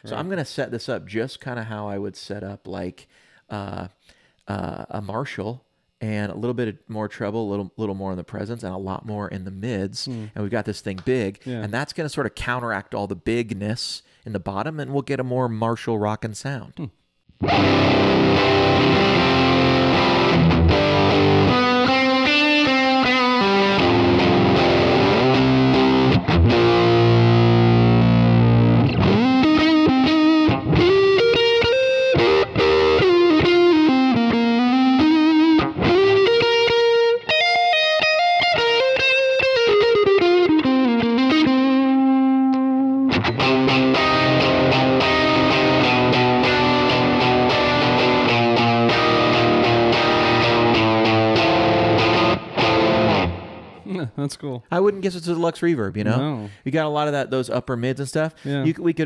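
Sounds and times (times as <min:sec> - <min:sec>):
overdriven electric guitar: 0:17.3 - 0:53.9.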